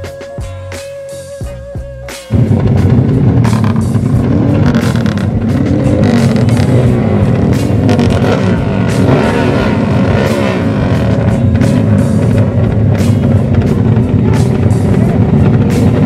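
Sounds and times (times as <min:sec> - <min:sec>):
motorcycle engine revving: 0:02.3 - 0:16.0.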